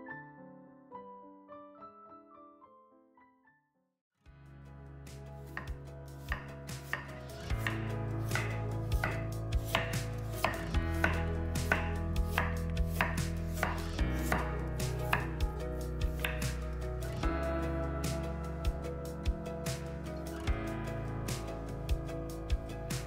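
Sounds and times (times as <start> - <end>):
knife chopping on a cutting board: 5.4 - 15.4, 16.1 - 16.6.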